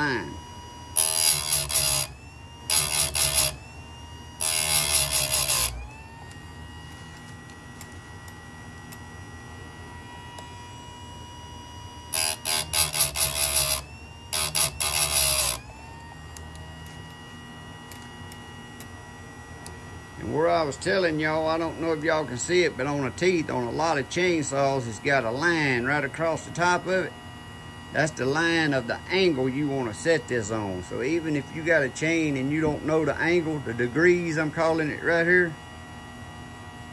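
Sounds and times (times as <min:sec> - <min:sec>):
motor whine: 0:00.0 - 0:36.9
grinding wheel on chain teeth: 0:01.0 - 0:03.6, 0:04.4 - 0:05.8, 0:12.1 - 0:15.6.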